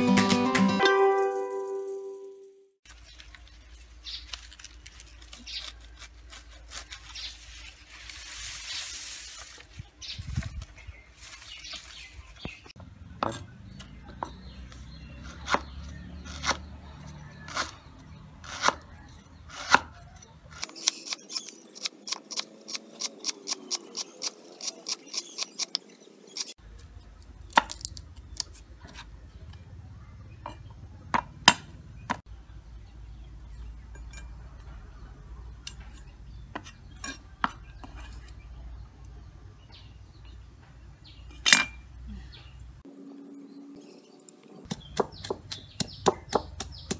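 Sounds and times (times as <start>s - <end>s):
knife cutting lemongrass: 4.2s - 9.6s
cleaver chopping on wooden block: 31.2s - 32.2s, 44.7s - 46.9s.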